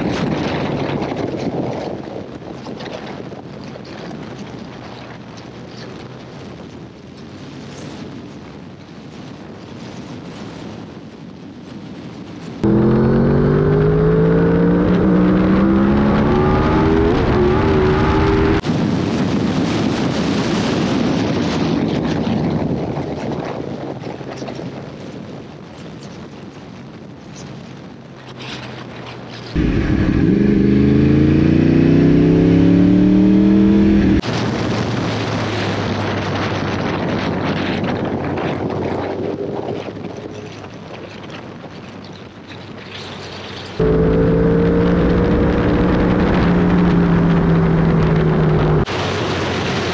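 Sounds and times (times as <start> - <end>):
wind and road noise: 0.0 - 49.9
motorcycle engine accelerating hard: 12.6 - 18.6, 29.6 - 34.4, 43.8 - 49.2.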